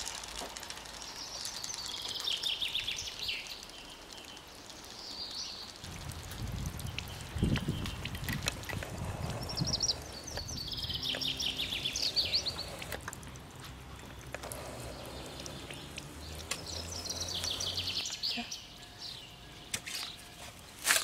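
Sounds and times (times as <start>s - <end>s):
songbird trilling: 9.2s - 12.9s, 14.8s - 19.4s.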